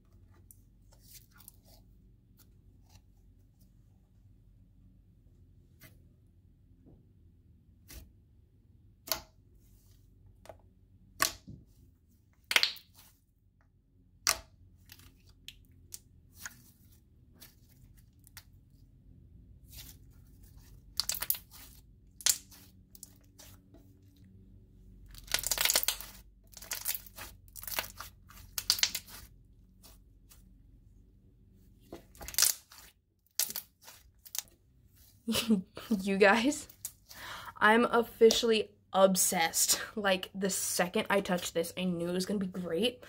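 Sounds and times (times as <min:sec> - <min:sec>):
slime crackling: 0:25.1 - 0:30.0.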